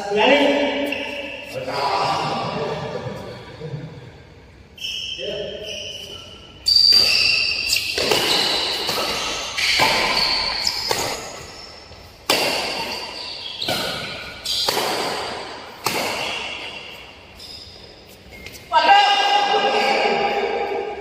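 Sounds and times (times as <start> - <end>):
badminton rackets hitting shuttlecock: 6.7 - 17.9.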